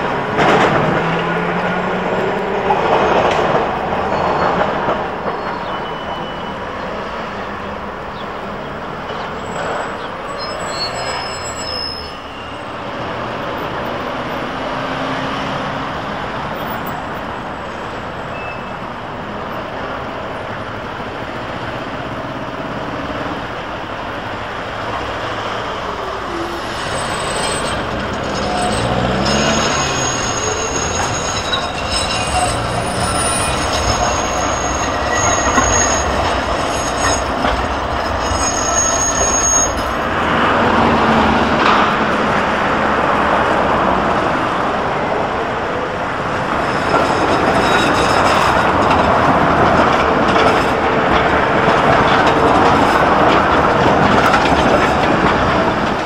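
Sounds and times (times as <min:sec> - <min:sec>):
tram passing close by: 0:00.0 - 0:56.0
tram wheels rumbling on rails: 0:00.0 - 0:56.0
high-pitched wheel squeal: 0:04.1 - 0:06.8, 0:09.1 - 0:12.9, 0:18.2 - 0:18.9, 0:25.9 - 0:40.2, 0:46.6 - 0:48.9.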